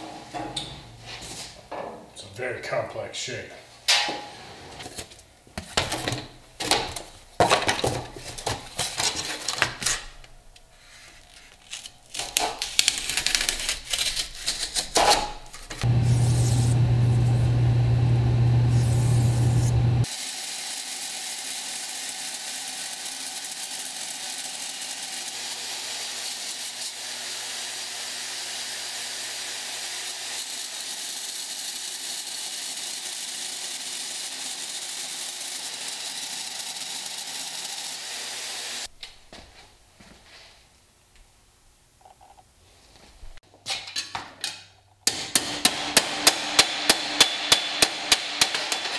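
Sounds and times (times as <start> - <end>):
loud steady hum: 15.8 - 20.0.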